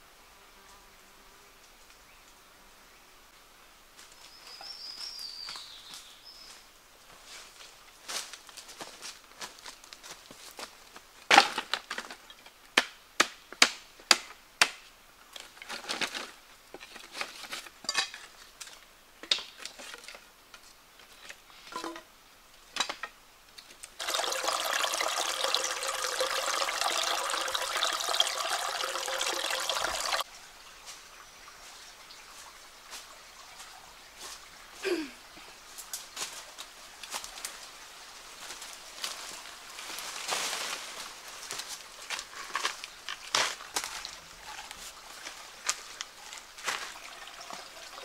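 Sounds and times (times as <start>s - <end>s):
water pouring: 24.0s - 30.3s, 43.9s - 48.0s.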